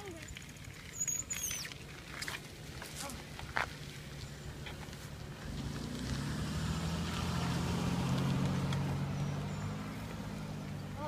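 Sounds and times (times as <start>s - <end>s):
car driving past: 5.1s - 11.0s.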